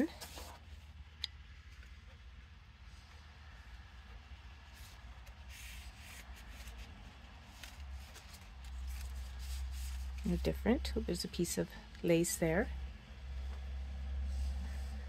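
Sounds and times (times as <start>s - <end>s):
paper rustling: 0.0s - 0.8s, 4.6s - 10.5s
steady low hum: 0.0s - 15.0s.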